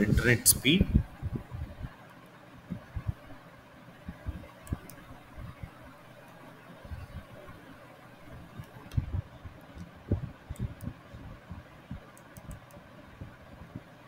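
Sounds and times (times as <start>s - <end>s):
faint background hiss: 0.0s - 14.0s
soft low thuds: 0.8s - 2.0s, 8.9s - 12.1s
light clicks: 12.1s - 12.8s.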